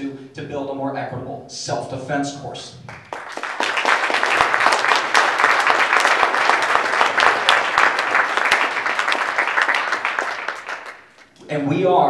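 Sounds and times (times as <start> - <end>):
audience applauding: 2.9 - 11.3.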